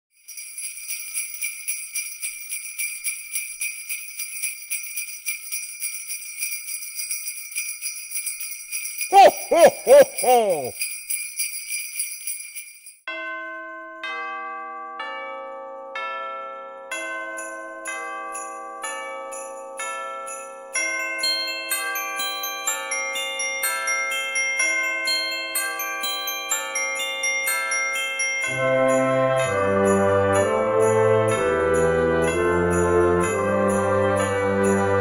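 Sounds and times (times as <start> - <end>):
sleigh bells shaken: 0.1 - 13.1, 17.2 - 18.7, 19.3 - 34.9
man laughing ho ho ho: 9.1 - 10.8
slow bell-like melody: 13.1 - 29.9.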